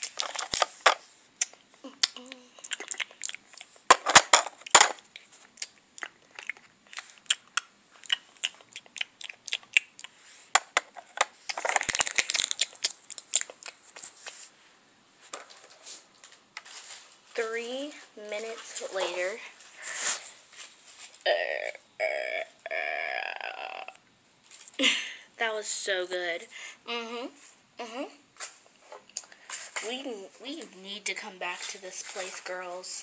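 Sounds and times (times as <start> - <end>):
plastic toys crackling and crinkling: 0.0 - 9.8, 10.6 - 14.5, 29.1 - 33.0
plastic rustling: 10.8 - 14.5, 31.2 - 33.0.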